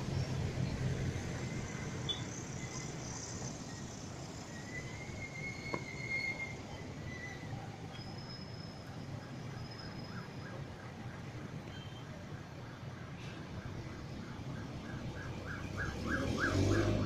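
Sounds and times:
high steady bird or insect call: 1.4s - 7.4s
vehicle passing with low rumble: 14.8s - 17.0s.

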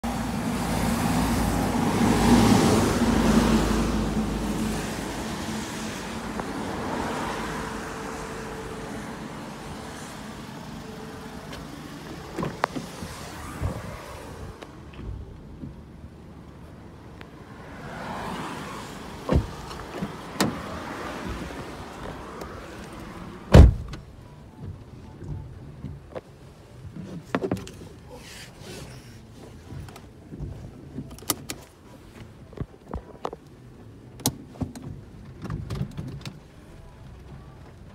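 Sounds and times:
road traffic hum: 0.0s - 37.9s
car door unlatching clicks: 11.5s - 13.2s
low steady cabin rumble: 23.6s - 37.9s.

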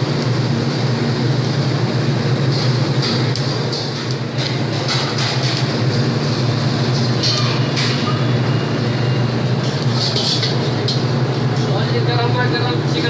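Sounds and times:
exhaust hood fans humming: 0.0s - 13.0s
gas burners: 0.0s - 13.0s
kitchen clatters: 2.5s - 5.7s, 9.6s - 11.8s.

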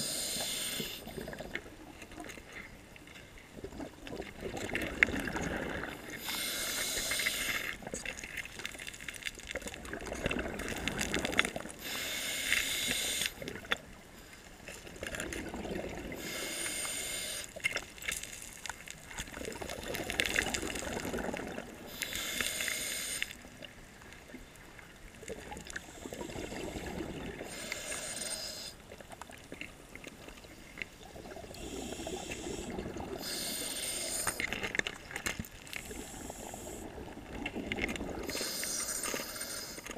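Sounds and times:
diver breathing through regulator: 0.0s - 1.4s, 5.6s - 7.8s, 11.8s - 13.4s, 16.1s - 17.6s, 21.9s - 23.4s, 25.8s - 28.8s, 31.5s - 34.6s, 35.8s - 37.0s, 38.2s - 39.9s
bubbles rushing: 3.6s - 6.0s, 9.8s - 11.7s, 14.9s - 16.2s, 19.3s - 21.9s.

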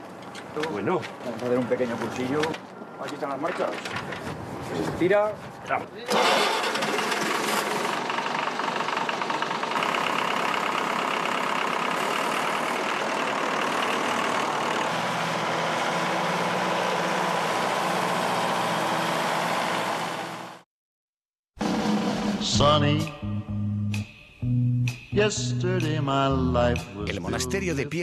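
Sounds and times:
diesel tractor engine running: 6.1s - 20.6s.

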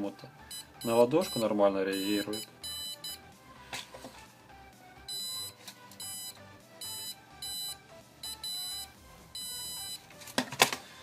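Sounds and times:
short high-pitched buzzer beeps: 2.0s - 3.2s, 5.1s - 10.0s.

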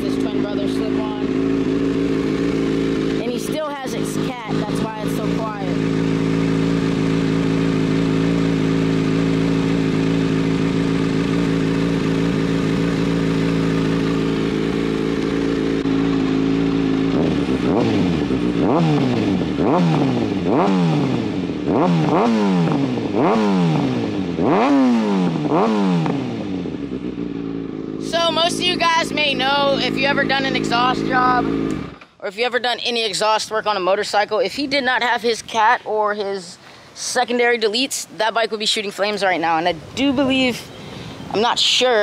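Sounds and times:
motorcycle throttle blips: 0.0s - 32.2s
motorcycle engine idling: 0.0s - 36.6s, 39.4s - 42.0s.

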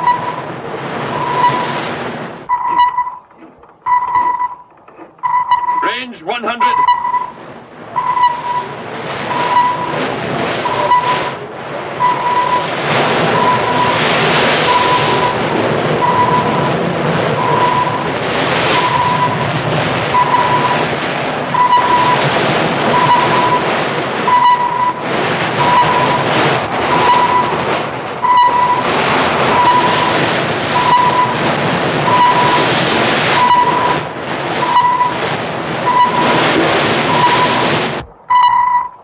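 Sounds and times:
sonar pinging: 0.0s - 1.8s, 2.4s - 11.4s, 12.0s - 39.0s.

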